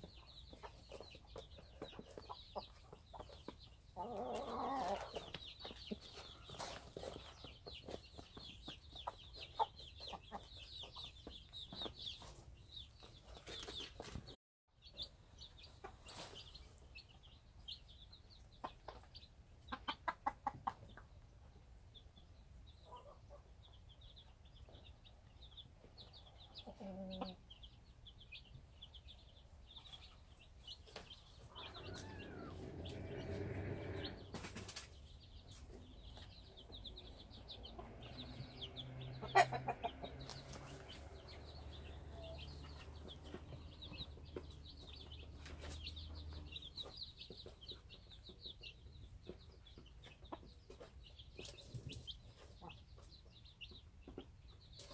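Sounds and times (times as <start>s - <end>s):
hen clucking: 0.0s - 12.2s, 18.5s - 21.2s, 26.1s - 27.7s, 30.9s - 54.9s
chicks peeping: 0.0s - 54.9s.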